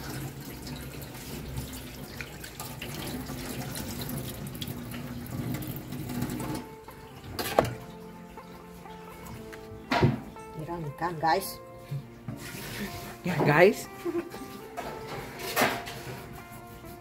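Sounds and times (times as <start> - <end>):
tap water splashing in sink: 0.0 - 6.7.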